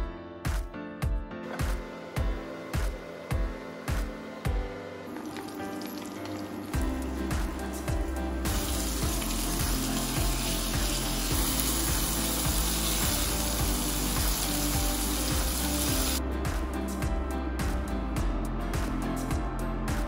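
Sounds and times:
background music with steady beat: 0.0s - 20.0s
chicken sizzling in a frying pan: 8.4s - 16.2s.

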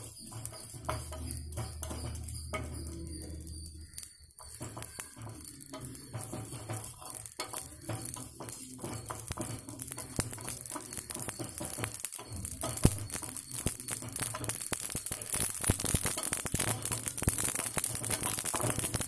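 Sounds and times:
seeds rattling against pan: 0.0s - 19.0s
spatula scraping metal pan: 0.0s - 19.0s
spices crackling: 0.0s - 19.0s.

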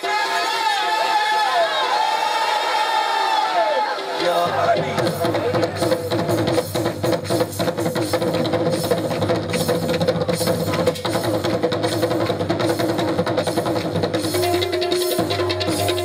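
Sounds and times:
fast percussion rhythm: 3.6s - 16.0s.

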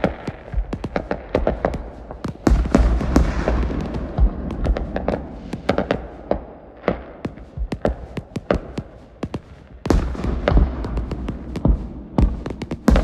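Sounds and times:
fireworks popping and crackling: 0.0s - 13.0s
deep firework boom: 2.4s - 6.3s.

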